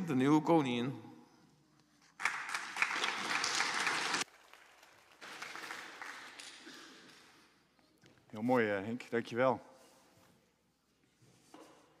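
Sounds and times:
congregation applauding: 2.2 - 7.3.

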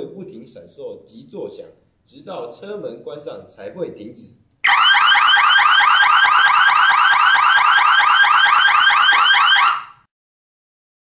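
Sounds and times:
warbling electronic alarm: 4.6 - 10.0.

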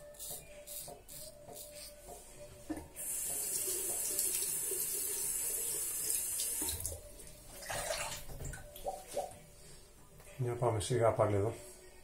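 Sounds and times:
tap water running into sink: 2.7 - 7.1.

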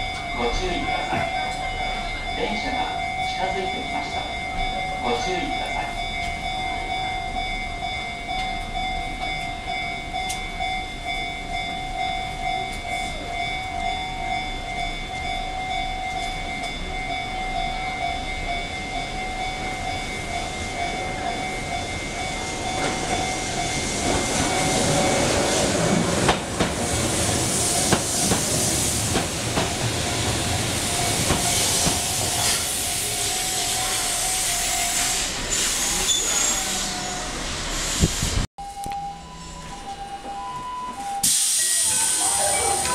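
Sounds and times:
level crossing bell ringing: 0.0 - 25.7, 38.6 - 42.9
train wheels running: 8.2 - 38.4.

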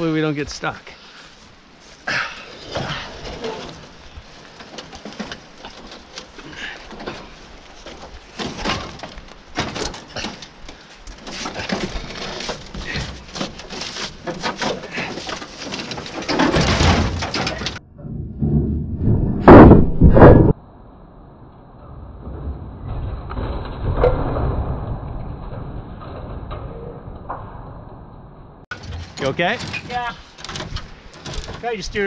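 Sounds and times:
metal clanks and scrapes: 2.6 - 18.7
heavy thump and clatter: 4.6 - 20.6.

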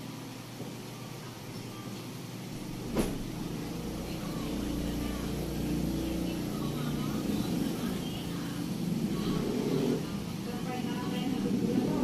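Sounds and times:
faint voices: 1.1 - 12.0
engine rumbling: 2.6 - 12.0.

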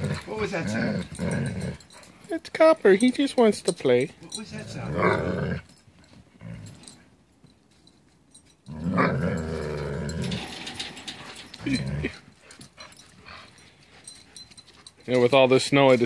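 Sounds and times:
dog grunt: 0.0 - 1.9, 4.6 - 5.7, 8.7 - 12.3
dog growling: 0.0 - 2.0, 4.6 - 5.7, 8.7 - 12.3.

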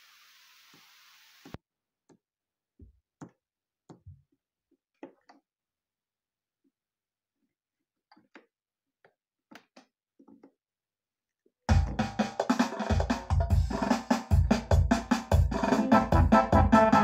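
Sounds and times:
faint steady hiss: 0.0 - 1.6.

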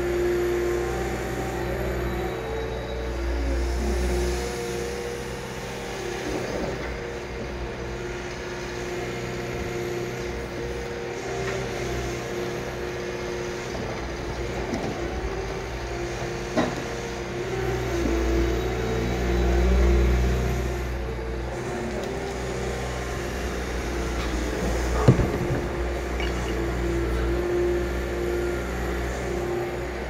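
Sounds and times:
excavator engine and hydraulics: 0.0 - 30.0.

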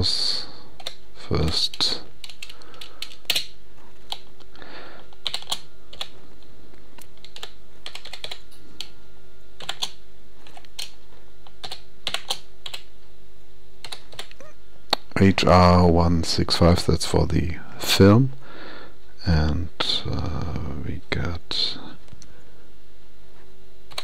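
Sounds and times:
faint hum: 0.0 - 24.0
keyboard typing: 0.8 - 4.3, 5.2 - 6.2, 7.0 - 8.9, 9.6 - 11.0, 11.6 - 12.9, 13.8 - 14.4.

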